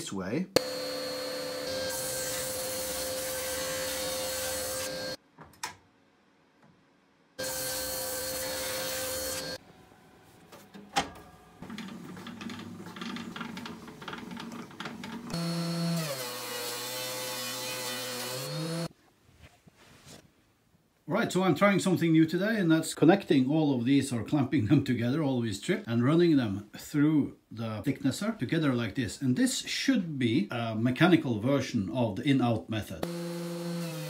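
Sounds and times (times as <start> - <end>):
table saw ripping wood: 0.6 - 5.2, 7.4 - 9.6, 11.6 - 18.9
thickness planer running: 0.6 - 5.2, 7.4 - 9.6.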